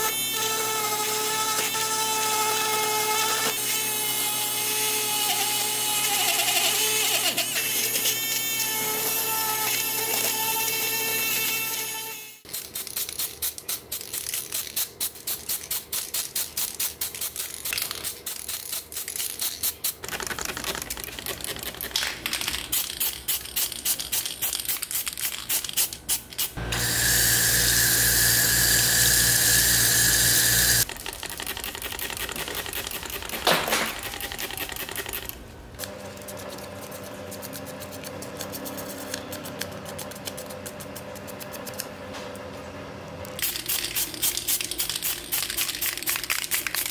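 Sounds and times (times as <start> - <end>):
rotary tool grinding metal: 0.0 - 12.2, 26.6 - 30.9
spray paint hissing: 12.5 - 21.8, 22.4 - 33.4, 43.4 - 46.9.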